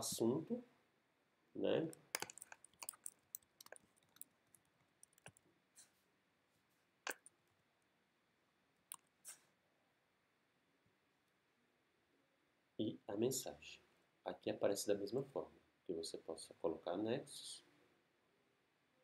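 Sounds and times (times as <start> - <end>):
computer keyboard typing: 2.0 - 5.4.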